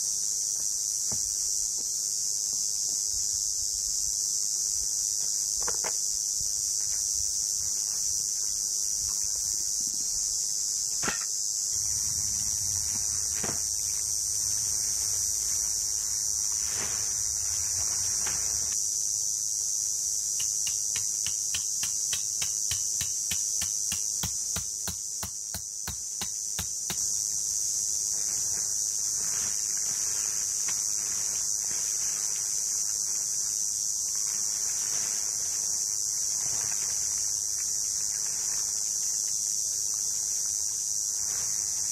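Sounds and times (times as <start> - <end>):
insects chorus: 0.0 - 41.9.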